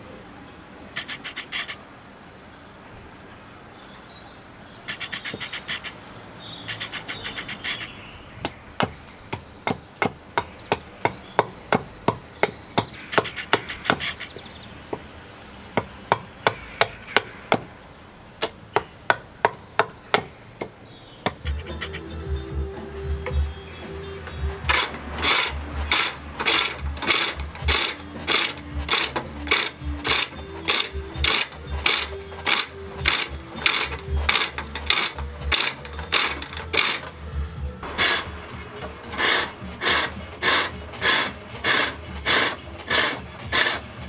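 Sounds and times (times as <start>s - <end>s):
hatchet chopping wood: 8.4s - 14.1s, 15.8s - 17.7s, 18.4s - 21.6s, 24.6s - 37.1s.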